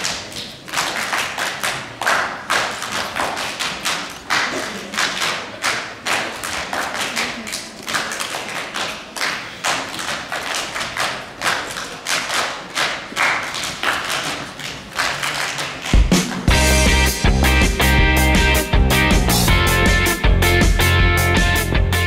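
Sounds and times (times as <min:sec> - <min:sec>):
group clapping and slapping laps: 0:00.0 - 0:21.9
rock music with guitar: 0:16.4 - 0:22.0.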